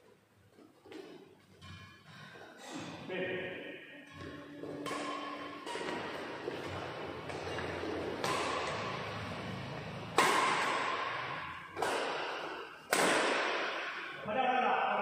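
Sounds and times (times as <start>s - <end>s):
badminton racket hitting shuttlecock: 4.2s - 14.2s.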